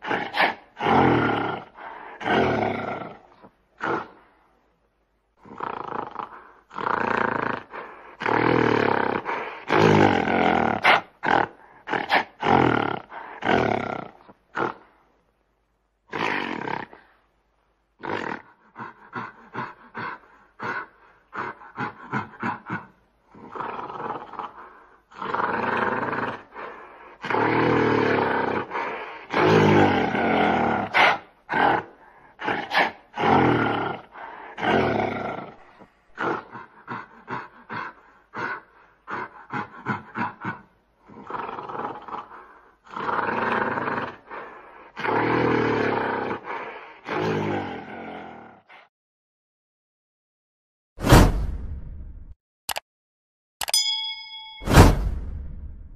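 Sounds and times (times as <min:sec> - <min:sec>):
gorilla roaring: 0:05.4 - 0:14.8, 0:18.0 - 0:20.0, 0:27.2 - 0:48.9.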